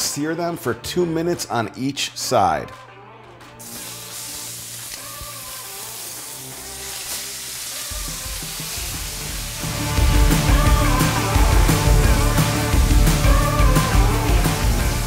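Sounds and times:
background music with bass: 0:00.0 - 0:15.0
steaks sizzling in a skillet: 0:03.6 - 0:11.9.

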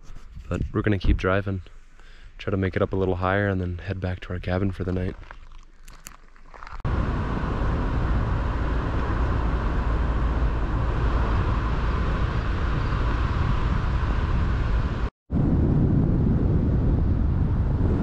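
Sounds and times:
car engine and tyre noise: 0:06.9 - 0:15.1.

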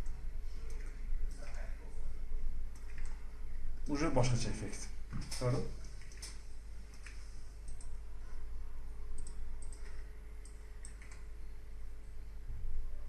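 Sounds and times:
computer mouse clicks: 0:00.0 - 0:01.6, 0:02.7 - 0:03.2, 0:06.0 - 0:08.0, 0:09.1 - 0:11.4
low steady hum: 0:00.0 - 0:13.0.

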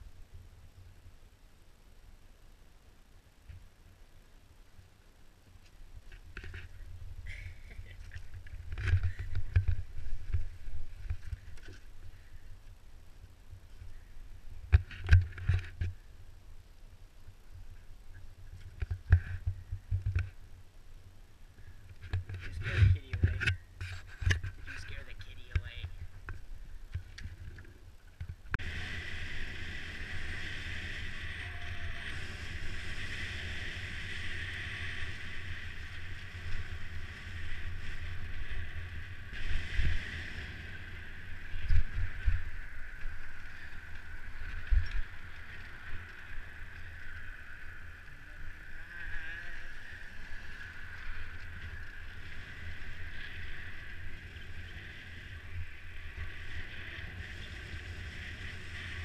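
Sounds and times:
wind rush on microphone: 0:28.2 - 0:59.0
tyre hiss on pavement: 0:28.6 - 0:59.0.

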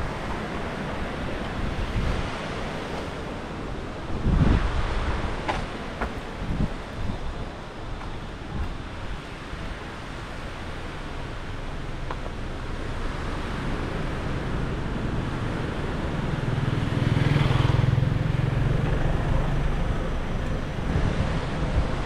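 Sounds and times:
wind on microphone: 0:00.0 - 0:22.0
motor scooter passing: 0:13.2 - 0:22.0.

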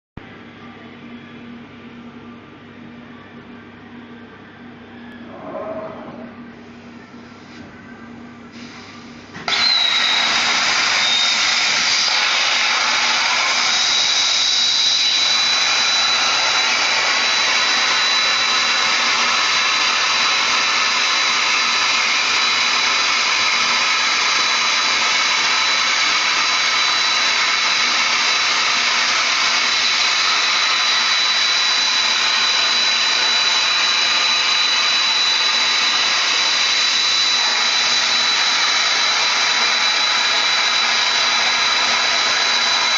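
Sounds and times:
plasma torch cutting steel: 0:08.6 - 0:42.9.

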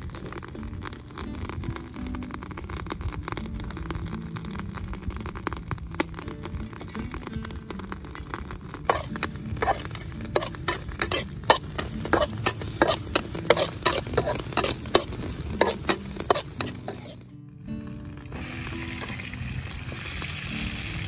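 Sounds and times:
garlic sizzling in hot oil: 0:00.0 - 0:17.3, 0:17.9 - 0:21.0
metal spatula scraping a wok: 0:08.8 - 0:17.2.

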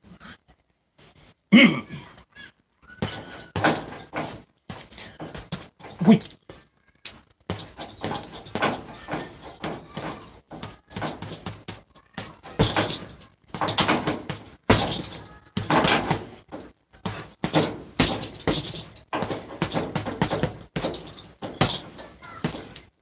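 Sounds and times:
gloves thudding on punching bag: 0:03.0 - 0:06.1, 0:07.5 - 0:22.8.

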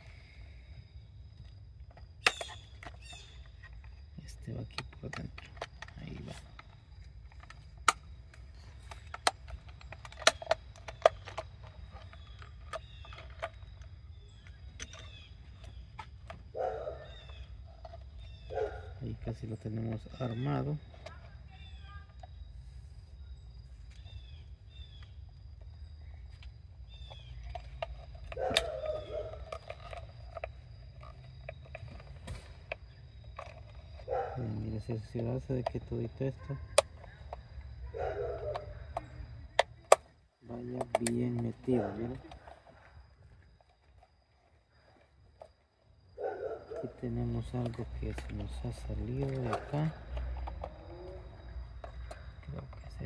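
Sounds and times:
plastic parts clicking and tapping: 0:01.4 - 0:16.5, 0:26.3 - 0:34.2, 0:38.3 - 0:44.1, 0:47.4 - 0:53.0.

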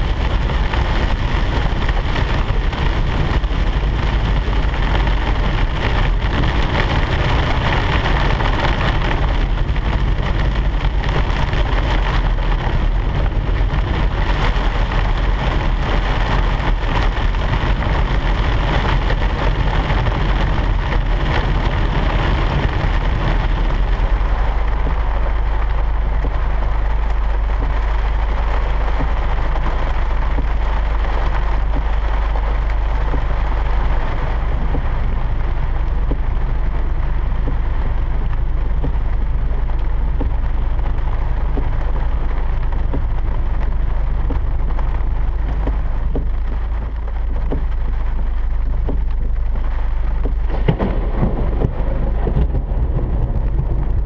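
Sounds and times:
car engine and tyre rumble: 0:00.0 - 0:54.0
rain pattering on car roof: 0:00.0 - 0:54.0.

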